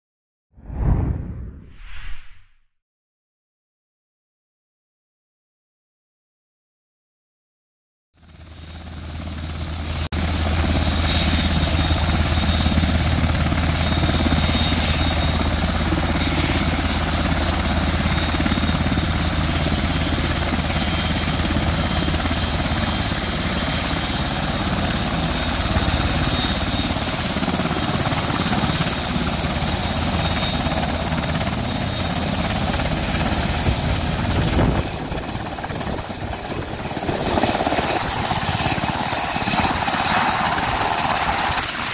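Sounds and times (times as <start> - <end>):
helicopter running: 8.3 - 41.9.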